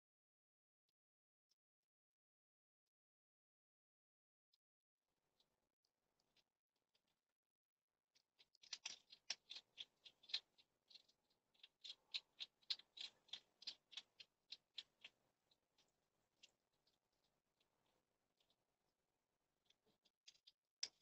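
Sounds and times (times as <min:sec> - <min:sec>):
hedgehog chewing crunches: 0:08.4 - 0:15.2.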